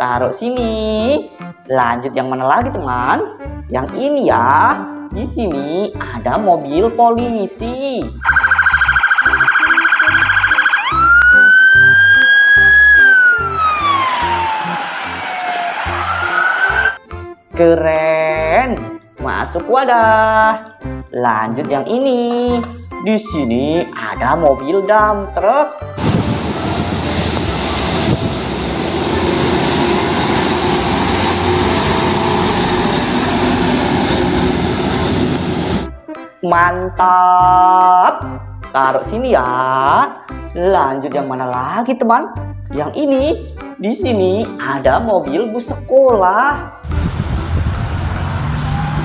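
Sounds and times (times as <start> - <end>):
police siren yelp and wail: 8.2 - 17.0, 48.1 - 49.0
truck engine drone: 8.2 - 17.0, 26.0 - 36.0, 46.9 - 49.0
tyres hissing on wet road: 14.0 - 16.9, 26.0 - 35.9, 46.9 - 49.0.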